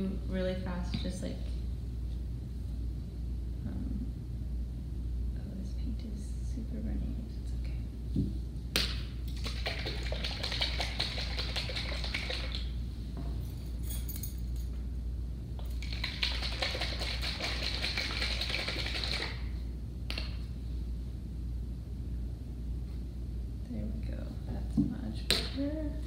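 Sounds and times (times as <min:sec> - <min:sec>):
rapid scratchy clicking of painting: 0:09.3 - 0:12.7, 0:15.6 - 0:19.4.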